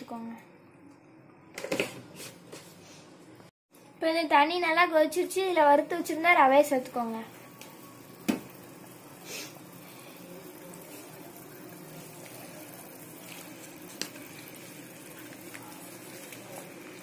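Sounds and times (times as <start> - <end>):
water boiling in a pan: 5.0 - 17.0
wooden spatula stirring: 11.9 - 17.0.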